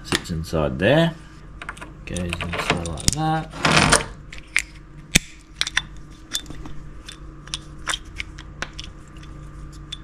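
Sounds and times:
low steady hum: 0:00.0 - 0:10.0
small parts clicking and tapping: 0:01.6 - 0:03.3, 0:04.4 - 0:10.0.

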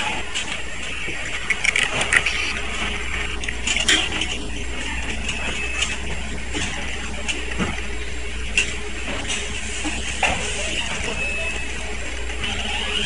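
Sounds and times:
low machine hum: 0:00.0 - 0:13.0
circuit boards clicking and knocking: 0:01.4 - 0:02.6.

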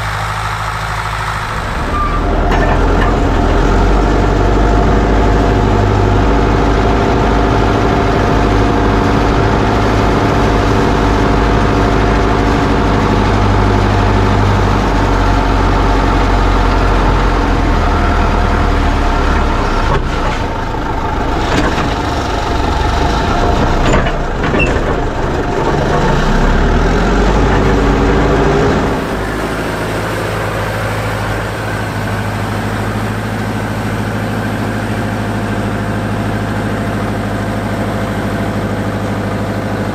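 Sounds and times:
second tractor running: 0:00.0 - 0:39.9
tractor diesel engine running: 0:00.0 - 0:39.9
sharp engine knocks: 0:19.4 - 0:29.3.

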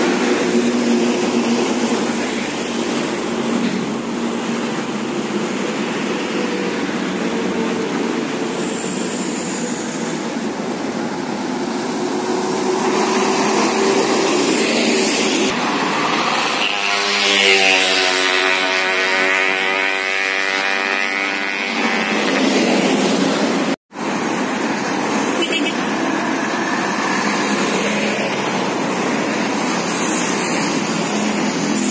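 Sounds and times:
tyres hissing on road: 0:00.0 - 0:17.8, 0:22.4 - 0:31.9
coaches passing with diesel engines: 0:00.0 - 0:31.9.

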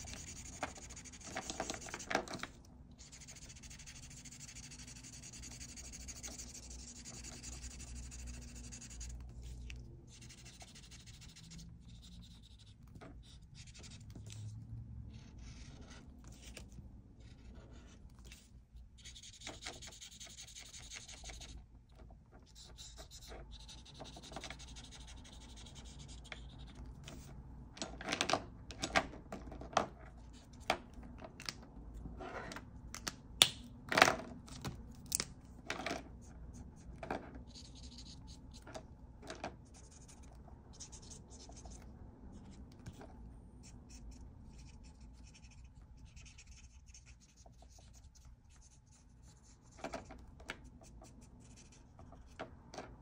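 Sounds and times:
marker scratching on paper: 0:00.0 - 0:21.6, 0:22.4 - 0:27.4, 0:36.2 - 0:38.8, 0:39.5 - 0:52.4.

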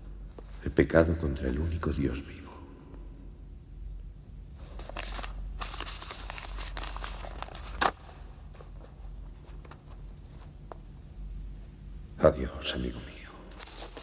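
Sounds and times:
low hum: 0:00.0 - 0:13.7
rustling handling noises: 0:04.5 - 0:10.9, 0:13.5 - 0:14.0.

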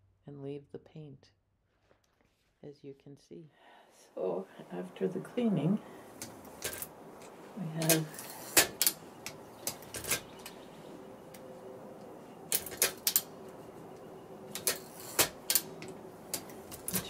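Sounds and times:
typewriter metal clicks: 0:12.5 - 0:13.3, 0:14.5 - 0:17.0.

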